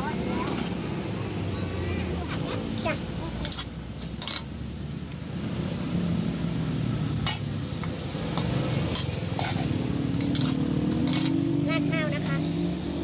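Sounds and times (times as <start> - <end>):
metal spoon clinking on steel bowl: 8.4 - 11.5.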